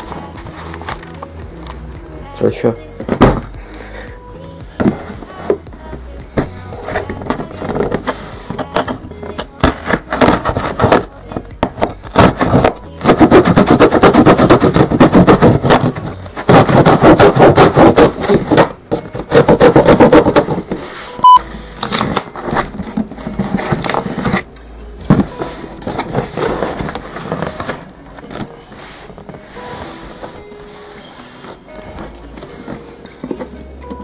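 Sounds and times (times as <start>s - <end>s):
knife scraping through cardboard: 9.6s - 11.0s, 12.1s - 21.2s
short beep: 21.2s - 21.5s.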